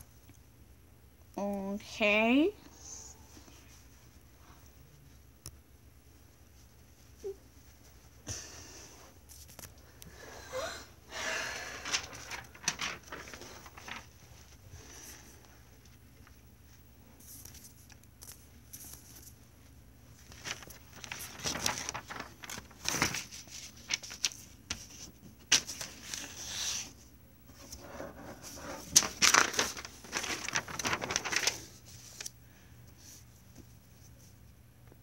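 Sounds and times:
paper rustling: 9.3s - 9.9s, 11.4s - 34.4s.

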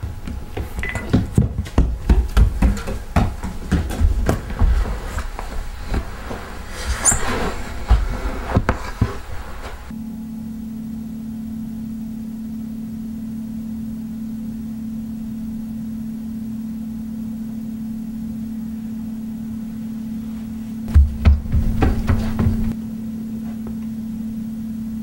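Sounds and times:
dull thumps: 0.0s - 9.9s, 20.9s - 22.8s
steady low hum: 0.0s - 25.0s.

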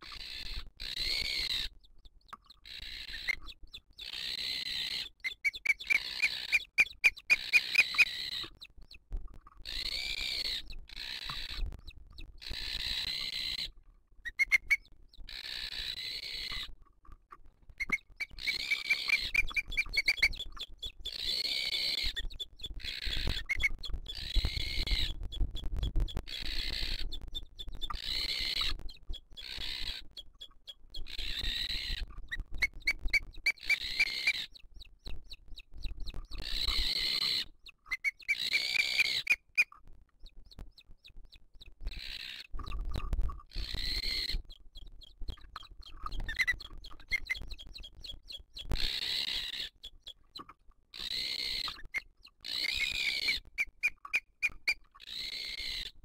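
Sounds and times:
eagles high whistled calls: 2.9s - 8.5s, 14.3s - 14.8s, 17.8s - 22.2s.

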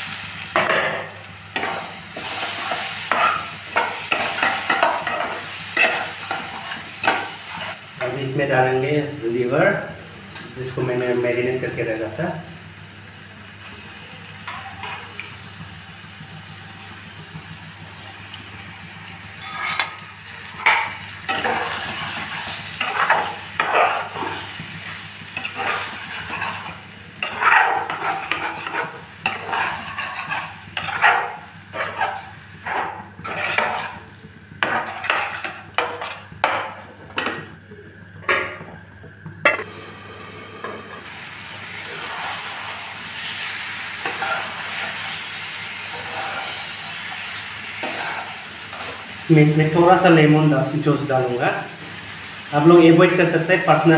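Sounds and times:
meat sizzling in a pan: 0.0s - 9.4s, 10.8s - 36.8s, 39.5s - 53.9s
spatula scraping pan: 1.6s - 7.8s, 14.4s - 15.2s, 19.4s - 20.0s, 20.6s - 37.3s, 44.0s - 49.1s.

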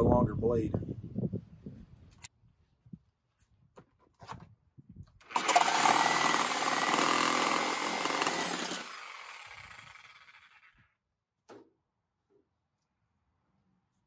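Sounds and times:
reciprocating saw cutting pipe: 5.2s - 10.8s.

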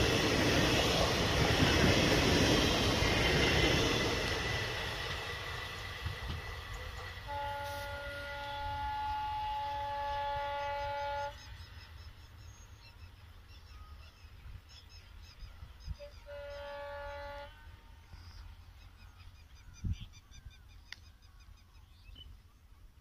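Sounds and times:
train horn two-tone blast: 7.1s - 11.6s, 16.0s - 18.0s.

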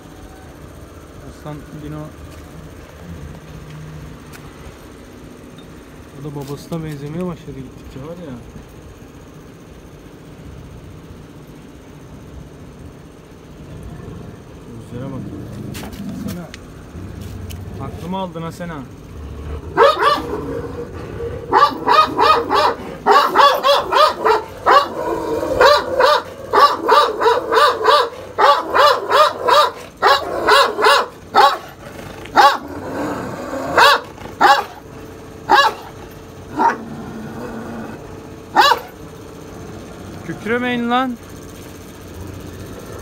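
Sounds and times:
dogs barking: 19.1s - 40.0s.

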